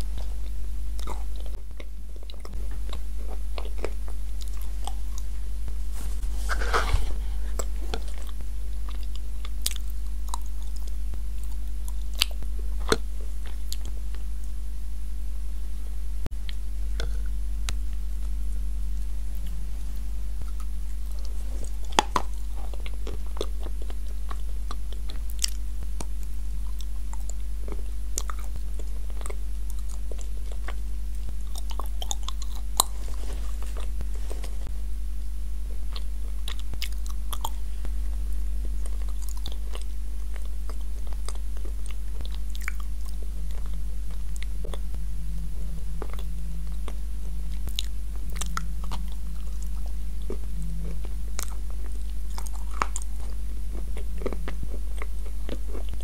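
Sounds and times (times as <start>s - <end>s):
crunching and chewing: 0.0s - 14.6s, 16.4s - 34.7s, 35.6s - 56.0s
low electrical hum: 0.0s - 56.0s.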